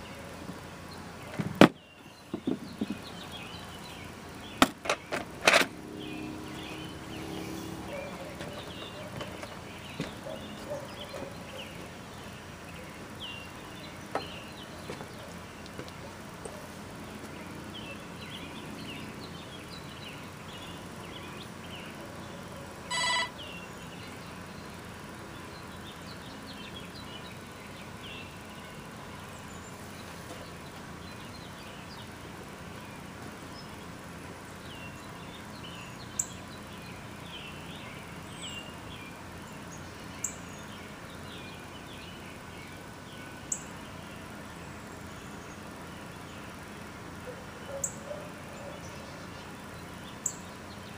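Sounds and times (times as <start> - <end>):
small birds chirping: 0.0 - 50.9
short electronic beep: 22.9 - 23.4.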